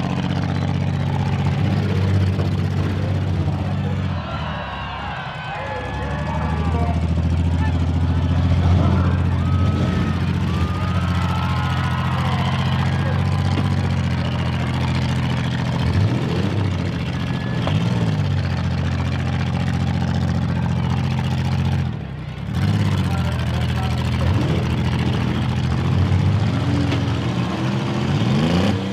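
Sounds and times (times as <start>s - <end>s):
car engines revving: 0.0s - 28.9s.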